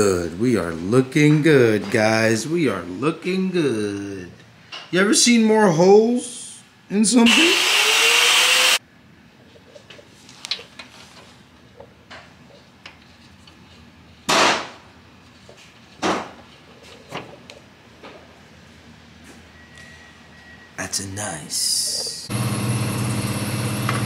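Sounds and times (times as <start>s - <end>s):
power tool hissing and whining: 7.3s - 8.8s, 22.3s - 24.0s.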